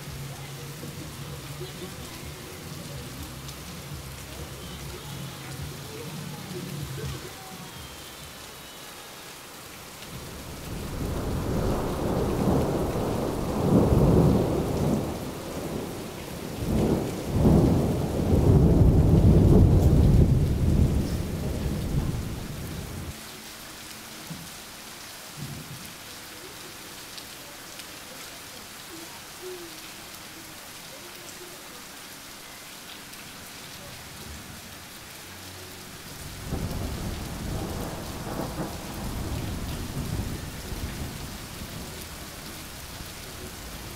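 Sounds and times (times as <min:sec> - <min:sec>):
steady rain: 0:00.0 - 0:43.9
thunder rumbling: 0:10.1 - 0:23.1, 0:36.2 - 0:43.9.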